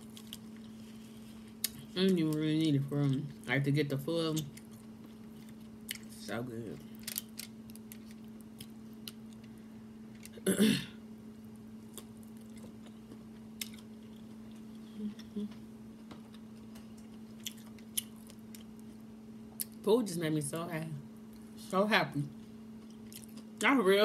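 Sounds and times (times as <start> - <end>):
steady low hum: 0.0 - 24.0
close-miked chewing: 11.8 - 15.6, 16.3 - 19.0, 22.8 - 23.5
person humming mm: 14.9 - 15.6.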